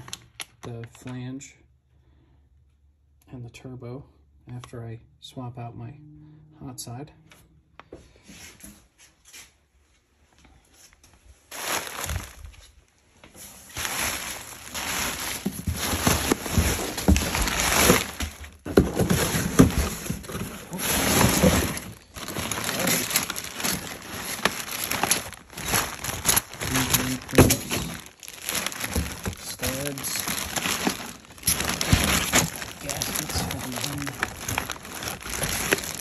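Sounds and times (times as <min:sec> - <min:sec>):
packing materials crinkling: 0:11.5 - 0:12.8, 0:13.4 - 0:36.0.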